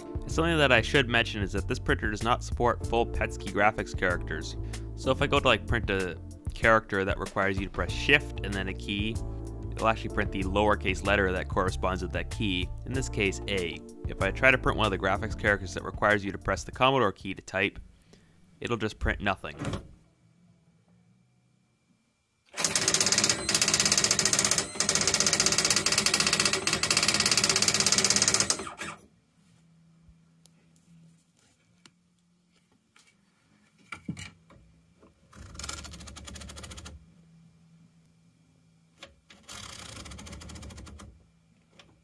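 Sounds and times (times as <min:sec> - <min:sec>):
printer mechanism noise: 0:19.0 - 0:20.1, 0:22.5 - 0:29.1, 0:33.8 - 0:37.1, 0:38.9 - 0:42.0.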